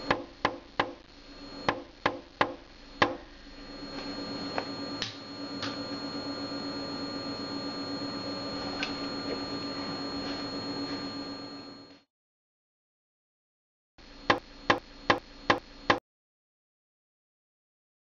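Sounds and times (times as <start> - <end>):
steady hum with high whine: 0.0 - 12.0, 14.0 - 16.0.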